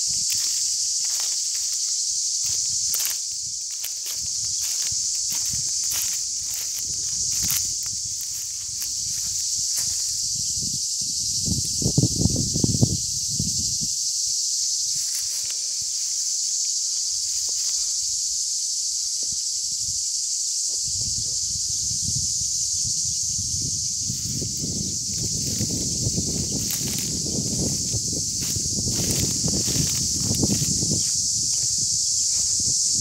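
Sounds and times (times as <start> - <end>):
footsteps in dry grass: 0.0 - 10.5, 14.8 - 18.1, 23.5 - 33.0
cicadas shrilling: 0.0 - 33.0.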